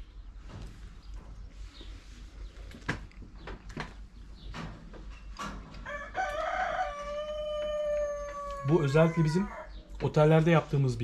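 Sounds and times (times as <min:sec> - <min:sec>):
rooster crowing: 0:05.8 - 0:09.9.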